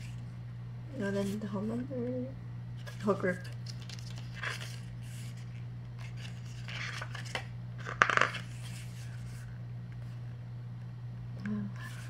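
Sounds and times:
steady low hum: 0.0s - 12.0s
paper and plastic rustling: 2.8s - 9.5s.

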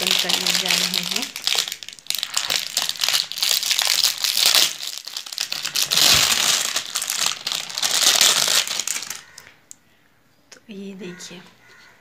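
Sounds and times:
plastic wrapping crinkling: 0.0s - 9.6s.

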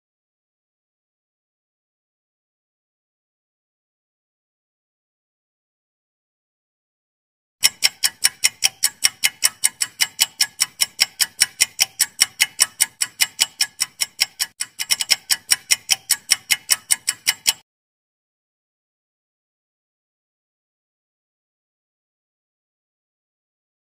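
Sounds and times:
clock ticking: 7.6s - 17.6s.

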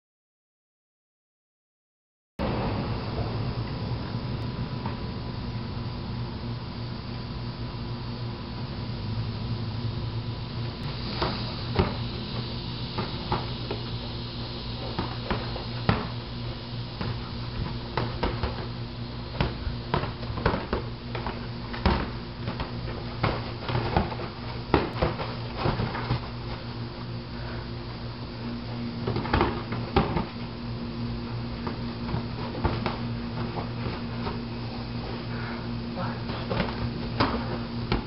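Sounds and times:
mechanical hum: 2.4s - 38.0s
boxing gloves slapping and thudding: 10.9s - 14.0s, 14.8s - 26.8s, 28.8s - 30.6s, 31.2s - 35.2s, 36.2s - 38.0s.

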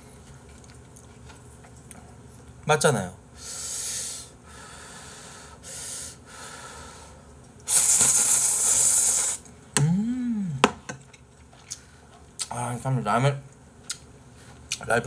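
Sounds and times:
person humming mm: 8.6s - 10.8s.

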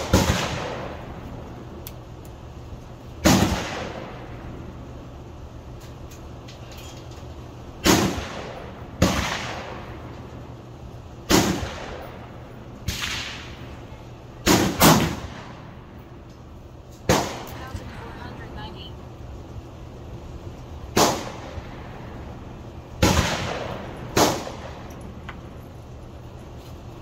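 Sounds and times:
echoing gunshots: 0.0s - 1.2s, 3.2s - 4.6s, 7.8s - 10.1s, 11.2s - 13.8s, 14.4s - 15.9s, 17.1s - 17.5s, 20.9s - 22.2s, 23.0s - 25.2s.

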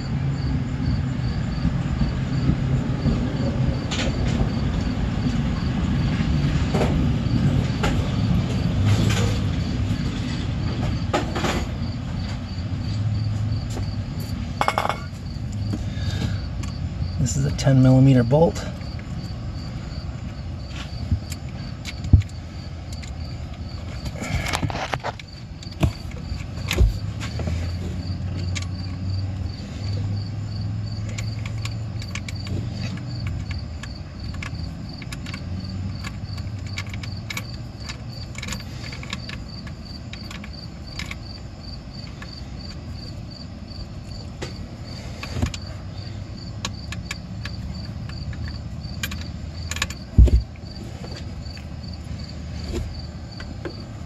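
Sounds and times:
cricket chirping: 0.0s - 54.0s
tools clicking and knocking: 13.8s - 15.8s, 30.8s - 43.2s, 43.8s - 51.8s.

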